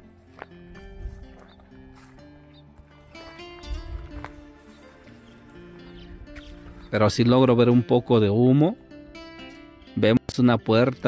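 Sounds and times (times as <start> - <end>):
instrumental background music: 0.0 - 11.0.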